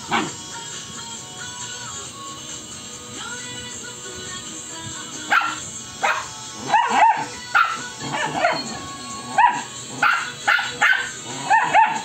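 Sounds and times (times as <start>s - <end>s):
puppies yipping and barking: 5.3s - 12.0s.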